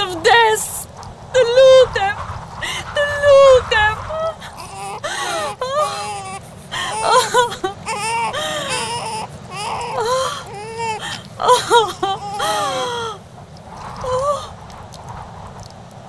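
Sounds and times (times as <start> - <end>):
baby crying: 4.3 - 13.2.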